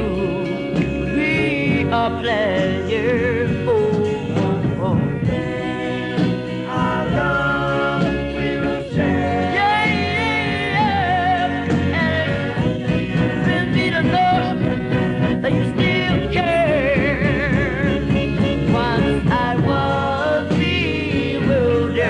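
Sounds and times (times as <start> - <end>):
backing music: 0.0 - 22.0
lead voice singing with vibrato: 0.0 - 22.0
vocal group singing in harmony: 0.0 - 22.0.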